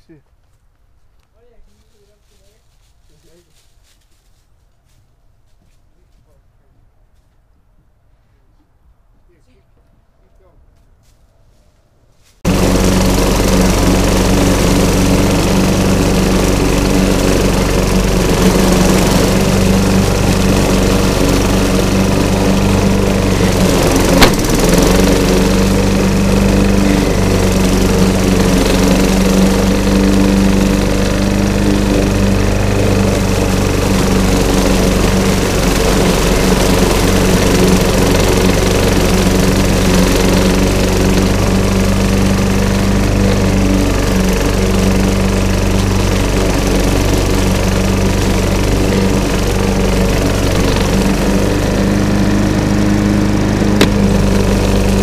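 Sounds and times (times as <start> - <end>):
lawn mower running: 12.4 - 55.0
sharp crack: 14.5 - 26.3, 53.8 - 54.6.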